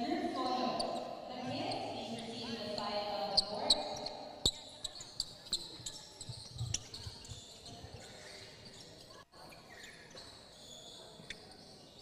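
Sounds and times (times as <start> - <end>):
crowd murmur in large hall: 0.0 - 12.0.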